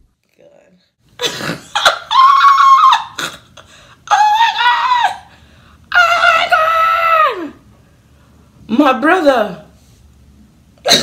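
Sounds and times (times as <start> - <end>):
woman wailing squeals: 1.7 - 3.4, 4.1 - 5.3.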